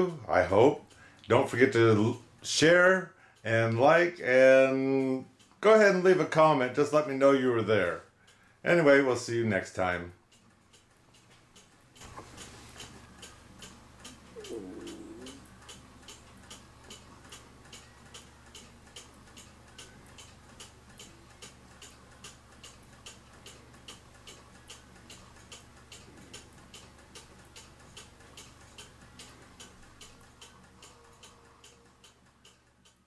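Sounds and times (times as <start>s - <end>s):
clock ticking: 0.1s - 33.0s
faint wavering sound: 14.3s - 15.4s.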